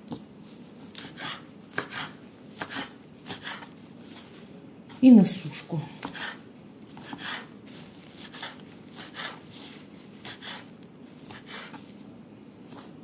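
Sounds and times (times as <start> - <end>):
knife chopping on cutting board: 0.9 - 3.7, 6.0 - 6.4, 7.0 - 7.5, 8.2 - 9.4.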